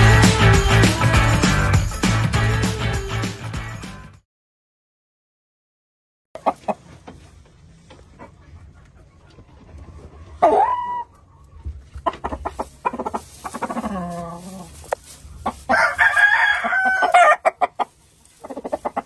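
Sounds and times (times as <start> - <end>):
chickens clucking: 6.4 - 19.0
chicken squawk: 10.3 - 19.0
rooster crowing: 15.7 - 17.5.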